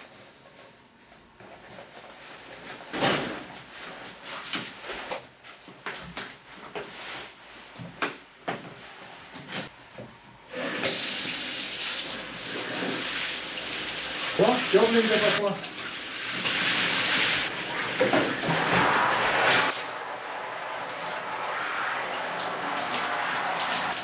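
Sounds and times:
synthetic fabric rustling: 0:00.1 - 0:09.4
shower water running: 0:10.5 - 0:24.0.

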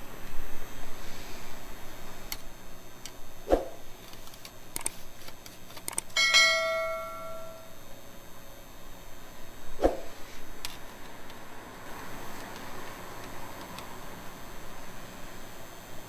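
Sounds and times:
metallic ring: 0:06.2 - 0:07.9.

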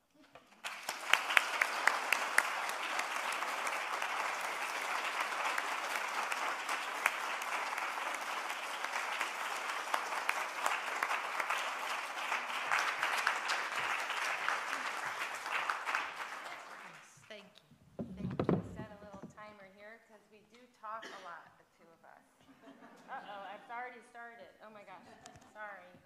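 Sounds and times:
audience applauding: 0:00.4 - 0:17.2.

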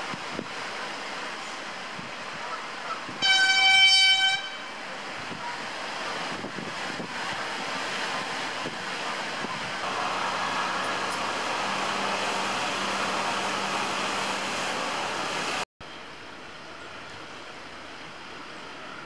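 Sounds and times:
signal horn blast: 0:03.2 - 0:04.8.

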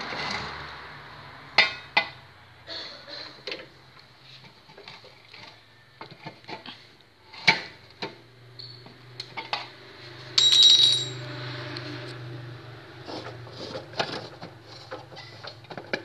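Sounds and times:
high-pitched ringing: 0:10.4 - 0:11.3.

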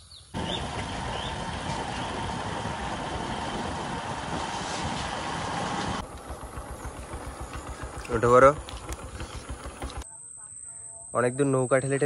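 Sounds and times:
motorcycle engine and road noise: 0:00.3 - 0:10.0.

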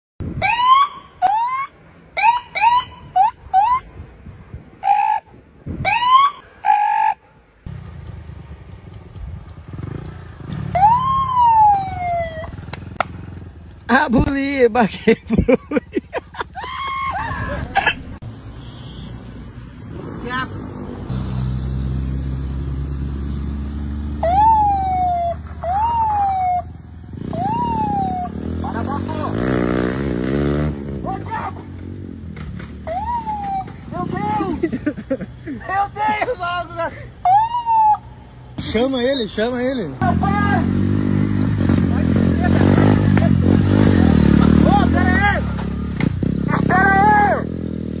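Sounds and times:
man imitating a police siren: 0:10.7 - 0:12.5, 0:24.2 - 0:28.5, 0:32.9 - 0:34.4, 0:37.2 - 0:38.2.

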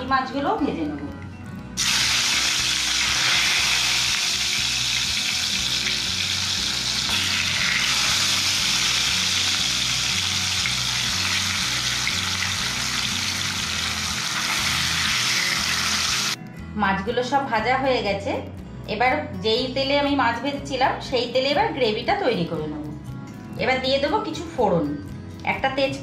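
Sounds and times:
fish frying in hot oil: 0:01.8 - 0:16.4.

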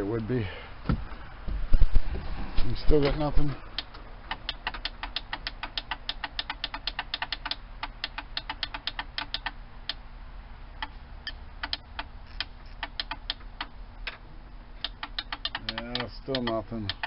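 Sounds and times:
starter solenoid clicking rapidly: 0:03.8 - 0:10.0, 0:10.8 - 0:14.2, 0:14.8 - 0:17.0.

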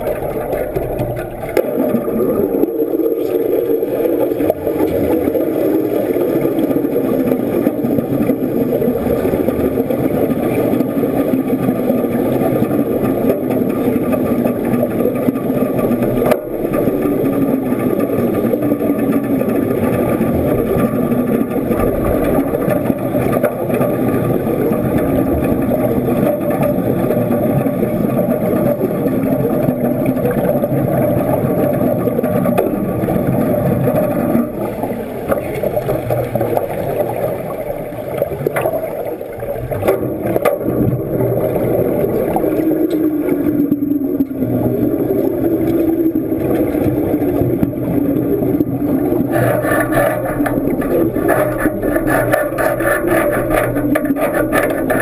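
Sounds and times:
muffled underwater rumbling and bubbling: 0:00.0 - 0:55.0.

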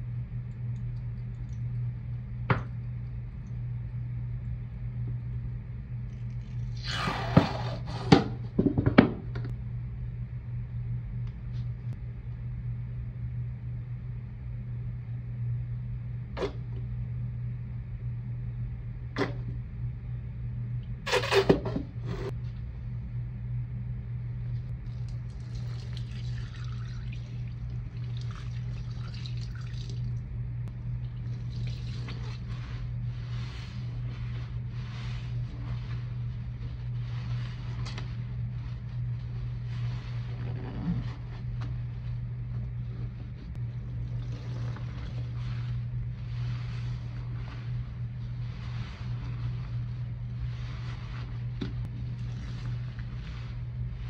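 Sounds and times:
low hum: 0:00.0 - 0:54.0
sponge squishing: 0:24.8 - 0:30.0, 0:31.0 - 0:54.0.

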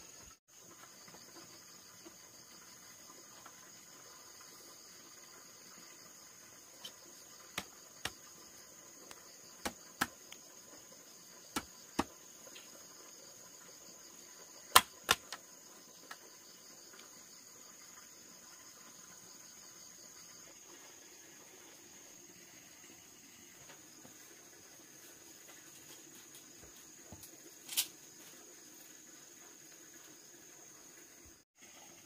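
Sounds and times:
insects trilling: 0:00.0 - 0:32.0
bamboo poles knocking: 0:09.6 - 0:10.2, 0:11.6 - 0:12.2, 0:14.7 - 0:15.4.

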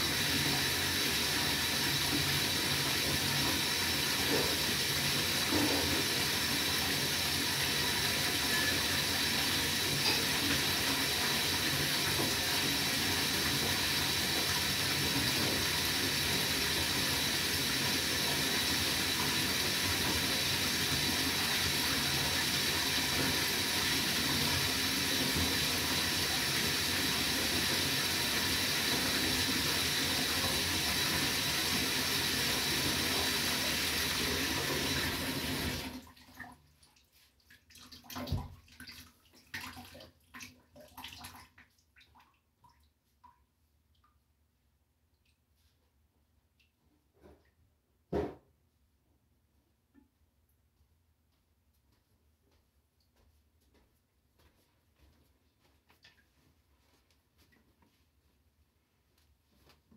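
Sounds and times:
water running from tap into bath: 0:00.0 - 0:42.1
water dripping: 0:36.1 - 0:44.3, 0:45.1 - 0:45.6, 0:46.5 - 0:46.8.

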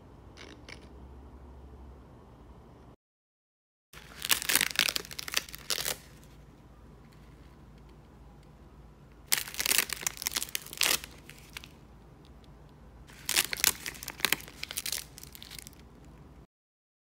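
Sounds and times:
nori crackling and tearing: 0:04.0 - 0:06.3, 0:09.3 - 0:11.8, 0:13.1 - 0:15.9.

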